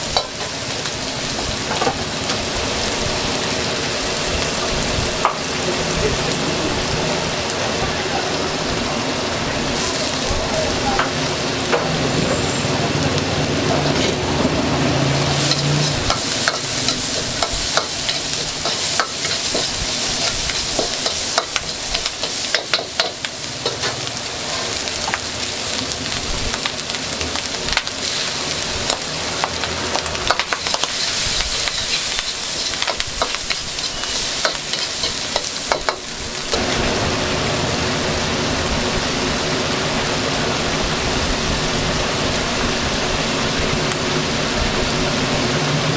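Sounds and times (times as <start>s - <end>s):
rice sizzling in a wok: 0.0s - 45.9s
spatula scraping a wok: 13.8s - 14.3s, 15.2s - 24.8s, 30.3s - 36.1s.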